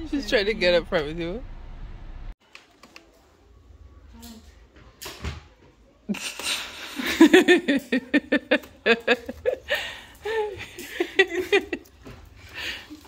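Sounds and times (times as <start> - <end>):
girls laughing and squealing: 6.2 - 12.0.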